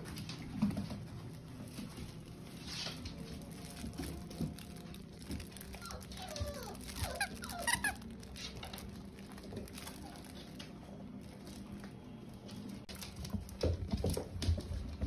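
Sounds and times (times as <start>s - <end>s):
puppies squeaking and whining: 5.6s - 8.8s.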